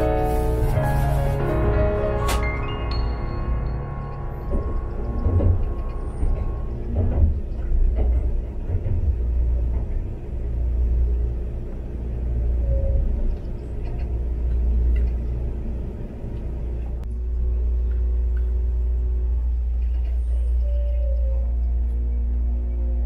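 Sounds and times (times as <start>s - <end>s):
train rumble from inside cabin: 0.0s - 23.0s.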